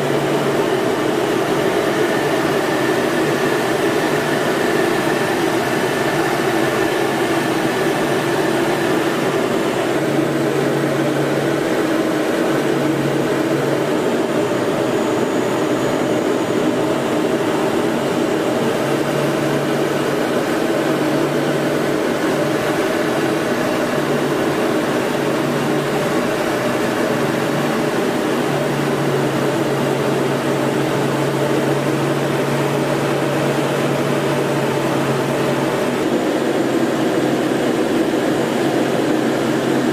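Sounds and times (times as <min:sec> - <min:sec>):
aircraft engine and airflow noise: 0:00.0 - 0:39.9.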